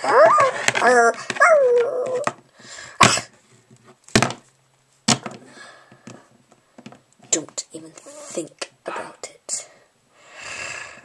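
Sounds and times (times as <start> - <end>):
dog-like whining cry: 0.0 - 2.3
plastic toys knocking on wooden floor: 0.3 - 2.4, 4.1 - 4.4, 5.1 - 6.2, 6.8 - 7.0.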